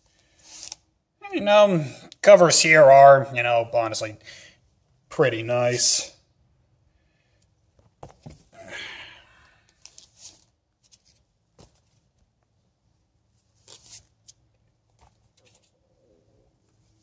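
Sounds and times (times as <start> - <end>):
comic books rustling: 9.8 - 12.4, 13.4 - 15.9.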